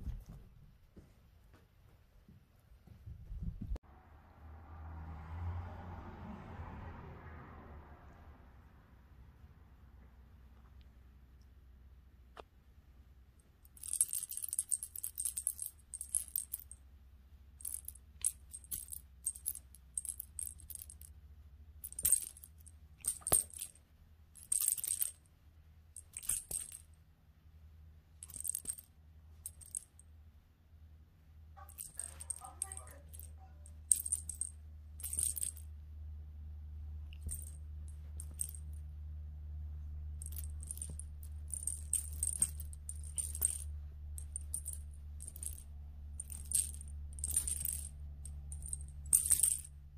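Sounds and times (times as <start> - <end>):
small bell jingling: 13.7 - 16.8, 17.6 - 21.1, 21.8 - 23.8, 24.4 - 25.2, 26.0 - 26.9, 28.2 - 30.0, 31.6 - 35.7, 37.1 - 38.8, 40.1 - 49.8.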